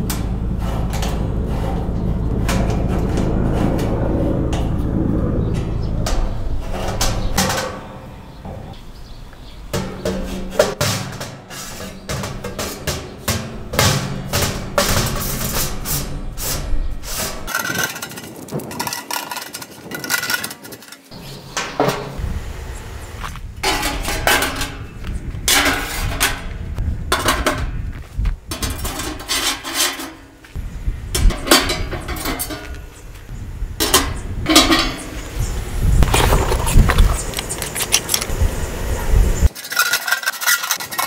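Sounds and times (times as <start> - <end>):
metal stove parts clinking: 9.7 - 16.6, 23.6 - 24.8, 28.5 - 30.3, 31.2 - 32.8, 33.8 - 35.1, 39.5 - 41.0.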